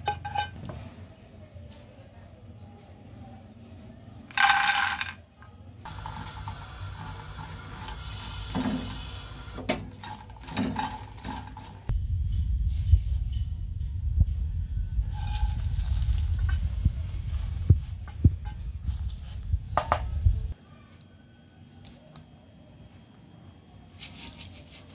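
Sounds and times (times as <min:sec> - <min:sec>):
chillies rattling into a pan: 0:04.3 - 0:05.2
steady low rumble: 0:11.9 - 0:20.6.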